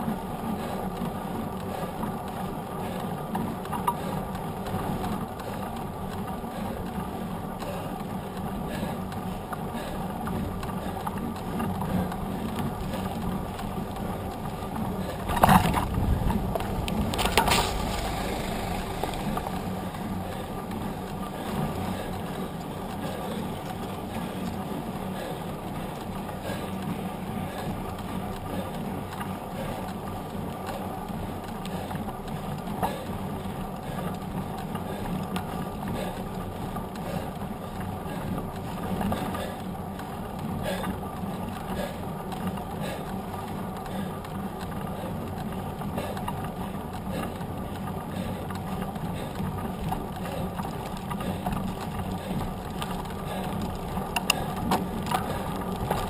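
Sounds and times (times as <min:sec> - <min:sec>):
bike tyre humming on asphalt: 0:00.0 - 0:56.0
wind noise: 0:15.3 - 0:20.2.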